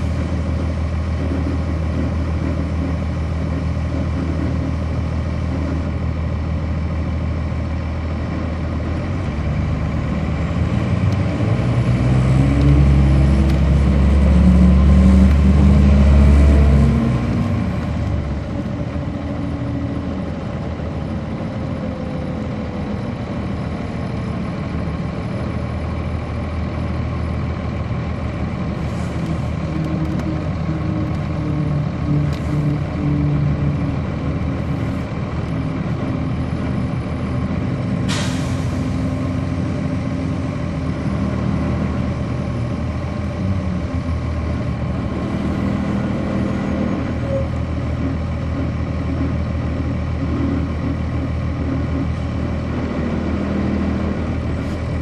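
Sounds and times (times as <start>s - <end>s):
bus diesel engine running: 0.0s - 55.0s
air brake hiss: 38.1s - 39.0s.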